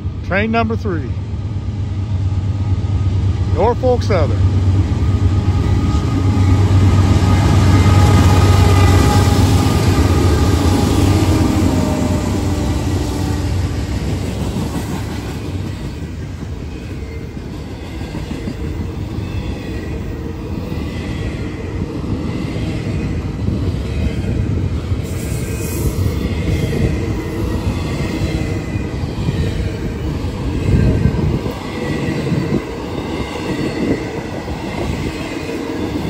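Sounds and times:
diesel locomotive engine rumble: 0:00.0 - 0:36.0.

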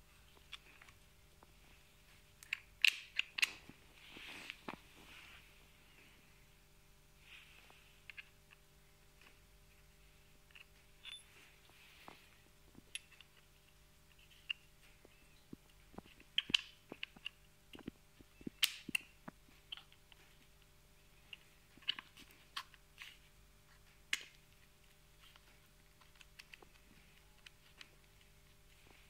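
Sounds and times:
small metal clicks and taps: 0:02.4 - 0:03.6.

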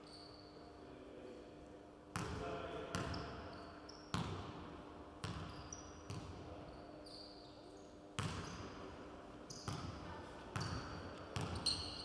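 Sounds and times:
sneaker squeaks: 0:00.0 - 0:00.7, 0:02.9 - 0:04.4, 0:05.2 - 0:08.8, 0:09.5 - 0:12.0.

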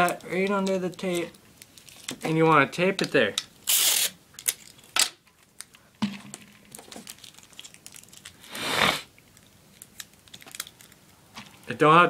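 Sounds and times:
tape crinkling: 0:00.0 - 0:11.7
tape ripping off roll: 0:03.6 - 0:04.2, 0:06.7 - 0:09.1.

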